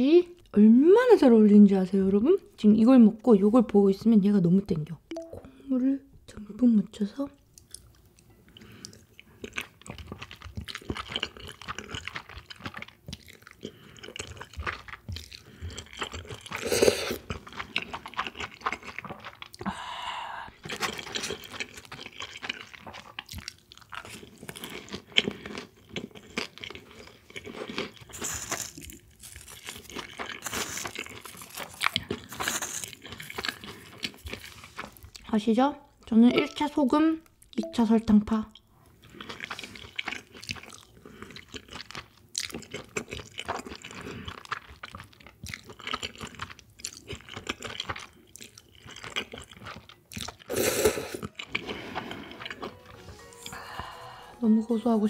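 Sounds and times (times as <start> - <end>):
person chewing and crunching food: 7.4 - 35.3, 38.5 - 54.5.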